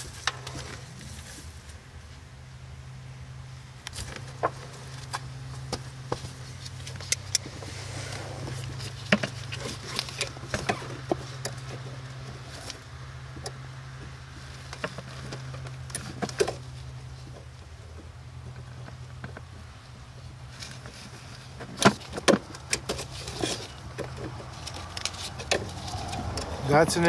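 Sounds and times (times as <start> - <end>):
steady low hum: 0.0 - 21.5.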